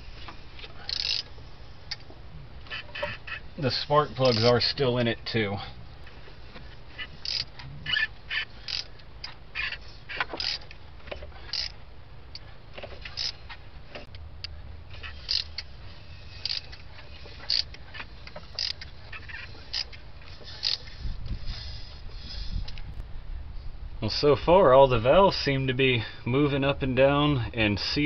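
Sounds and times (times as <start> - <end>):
ratchet clicking and creaking: 0.1 - 3.4, 4.1 - 4.6, 6.9 - 22.8.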